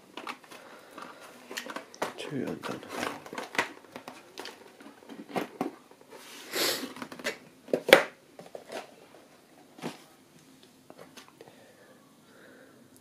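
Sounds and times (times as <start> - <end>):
cardboard and plastic handling: 0.0 - 10.1.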